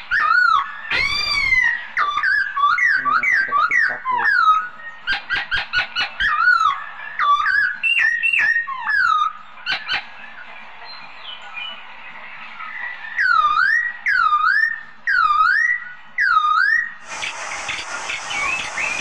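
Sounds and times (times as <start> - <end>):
songbird singing whistled notes: 0.0 - 9.9, 12.6 - 19.0
bird chip notes: 17.0 - 19.0.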